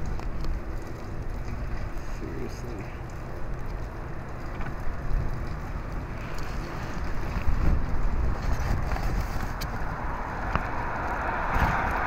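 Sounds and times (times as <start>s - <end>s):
steady outdoor noise: 0.0s - 12.0s
wind buffeting microphone: 0.0s - 12.0s.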